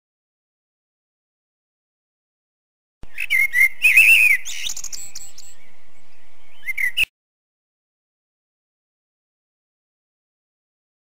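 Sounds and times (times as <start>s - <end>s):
songbirds chirping and whistling: 3.0s - 7.1s.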